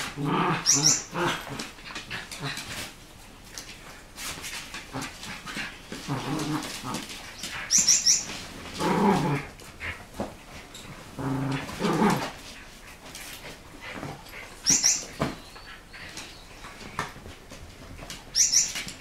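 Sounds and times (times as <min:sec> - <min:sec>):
small dogs whining: 0:00.4 - 0:01.3
small dogs high squeaks: 0:07.7 - 0:08.3, 0:14.6 - 0:15.8.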